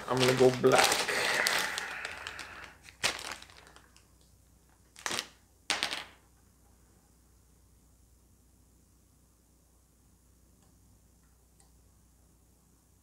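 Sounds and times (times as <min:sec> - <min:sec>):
plastic bag crinkling: 0:00.0 - 0:04.1, 0:04.9 - 0:05.4.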